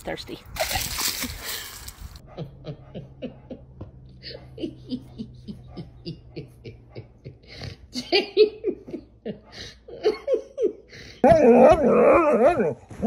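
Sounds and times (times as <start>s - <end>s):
person laughing: 0.6s - 12.0s
dog howling: 11.2s - 12.9s.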